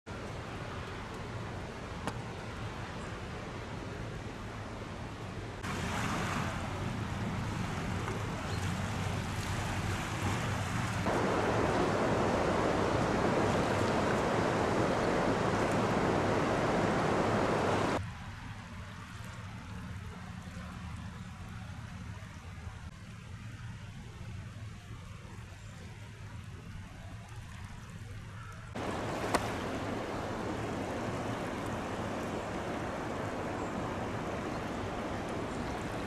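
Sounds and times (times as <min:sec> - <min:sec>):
river rushing: 0:05.6 - 0:18.0, 0:28.8 - 0:36.0.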